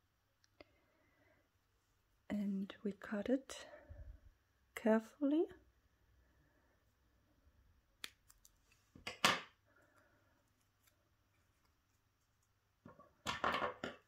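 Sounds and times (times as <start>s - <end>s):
scissors snipping foam: 8.0s - 8.6s.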